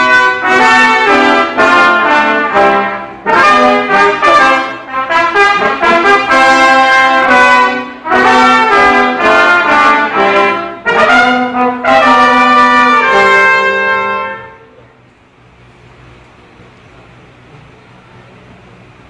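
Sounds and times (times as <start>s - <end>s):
brass melody: 0.0s - 14.8s.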